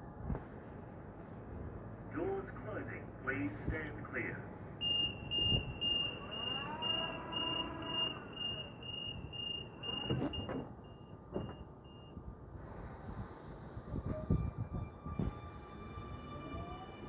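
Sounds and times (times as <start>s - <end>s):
door-closing warning beeps: 4.8s - 12.2s
train motor whine: 5.0s - 10.8s
loud hiss of air: 12.4s - 15.0s.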